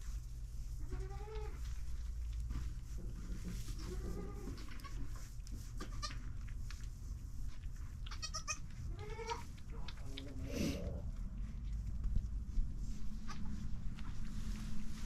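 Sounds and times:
steady low hum: 0:00.0 - 0:15.0
goats bleating: 0:08.1 - 0:09.4.

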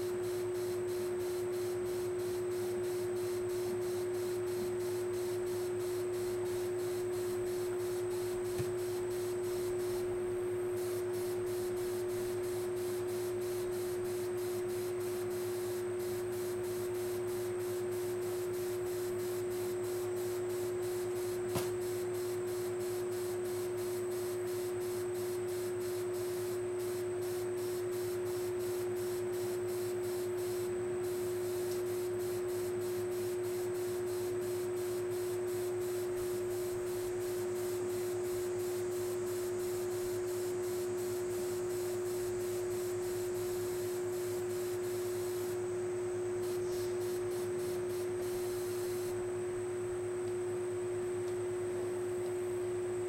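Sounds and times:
constant hum: 0:00.0 - 0:53.0
steady hiss: 0:10.8 - 0:49.3.

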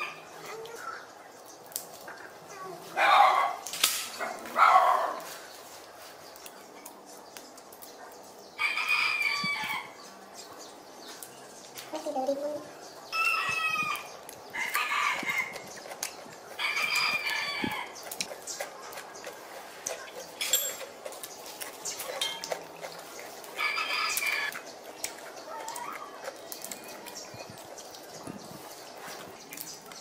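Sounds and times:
roosters crowing: 0:08.6 - 0:10.0, 0:13.0 - 0:15.8, 0:16.4 - 0:18.1, 0:22.6 - 0:24.6.

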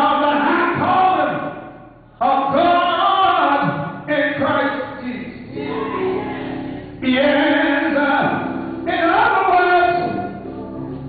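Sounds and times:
man singing into a microphone: 0:00.0 - 0:01.5, 0:02.2 - 0:05.6, 0:07.0 - 0:10.6
voices singing along: 0:05.5 - 0:08.3.

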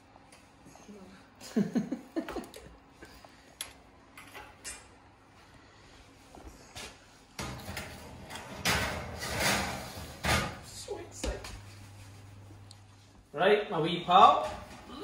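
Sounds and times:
metal tray sliding onto oven rack: 0:07.4 - 0:10.7.

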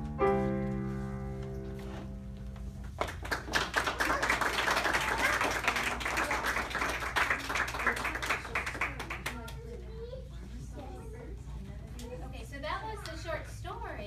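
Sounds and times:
audience applauding: 0:03.0 - 0:09.6.

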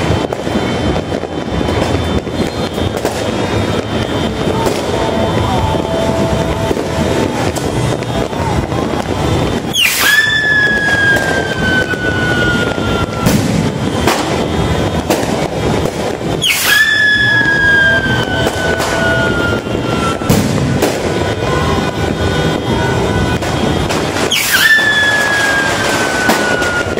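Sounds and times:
fireworks bangs: 0:00.0 - 0:26.9
fireworks crackling: 0:00.0 - 0:26.9
fireworks whistles: 0:00.0 - 0:26.9.

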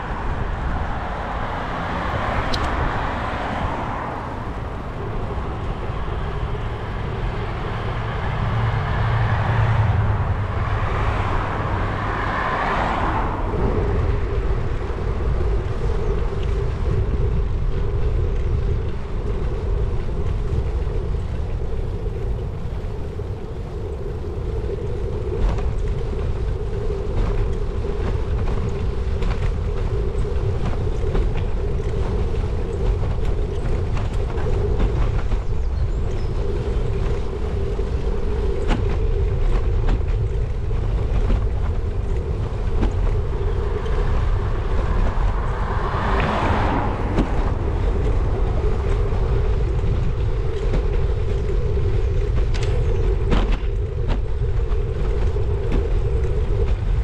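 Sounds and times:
bicycle road rumble: 0:00.0 - 0:57.0
rushing noise: 0:00.0 - 0:57.0
wind buffeting microphone: 0:00.0 - 0:57.0.

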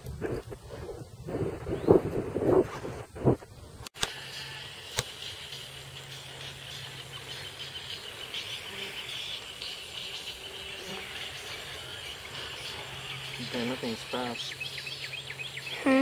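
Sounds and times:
wind buffeting microphone: 0:00.0 - 0:03.9
insects chirring: 0:04.0 - 0:16.0.

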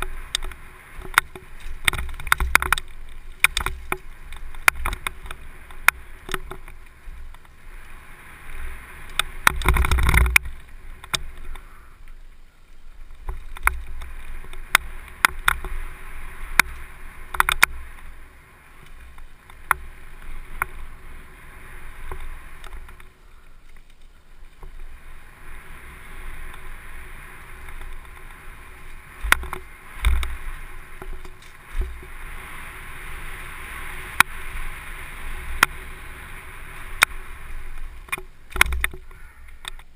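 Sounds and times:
bike rattling clicks: 0:00.0 - 0:08.0, 0:08.7 - 0:12.3, 0:13.0 - 0:24.8, 0:25.6 - 0:39.9
bike tyres on dirt: 0:00.0 - 0:39.9.

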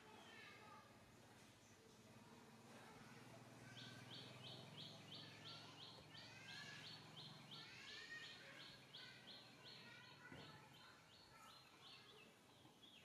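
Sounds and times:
bird calls: 0:03.7 - 0:13.0.

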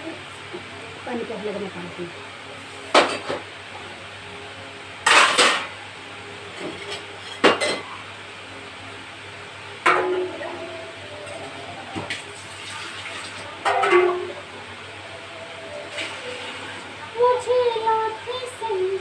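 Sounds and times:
metal kitchen utensils clanking: 0:05.0 - 0:05.7, 0:13.6 - 0:14.4.

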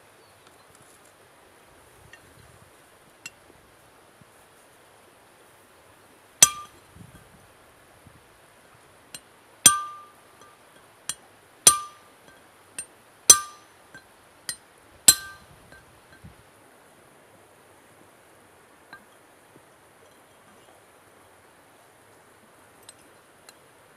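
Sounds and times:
hammer striking steel: 0:06.4 - 0:06.8, 0:09.7 - 0:10.2, 0:11.7 - 0:12.1, 0:13.3 - 0:13.7, 0:15.1 - 0:15.5.

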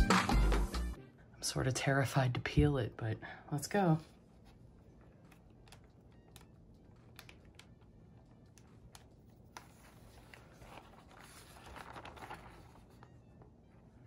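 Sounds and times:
paper rustle: 0:04.4 - 0:14.0
paper peeling with crackles: 0:04.5 - 0:13.9.

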